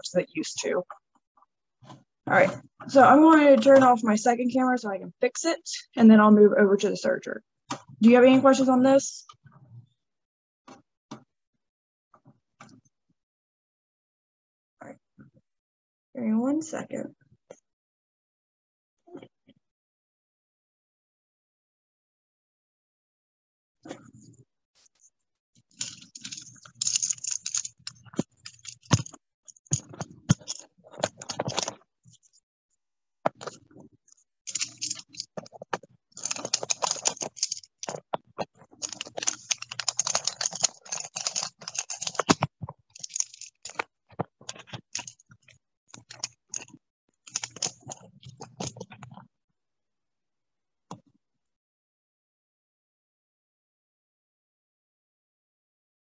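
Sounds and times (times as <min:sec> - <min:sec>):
hands clattering plastic parts: 0:25.7 - 0:32.4, 0:33.2 - 0:49.2.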